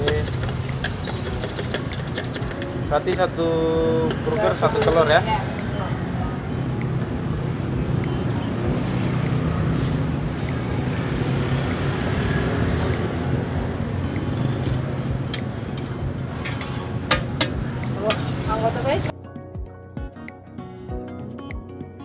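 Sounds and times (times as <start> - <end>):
metal utensils clicking on griddle: 0.0 - 3.3
street traffic: 0.0 - 19.1.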